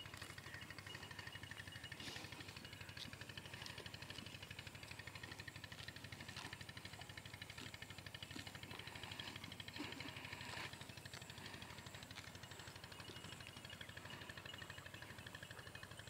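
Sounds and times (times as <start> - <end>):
engine running with rapid pulse: 0.0 - 16.0
rustle: 1.9 - 12.8.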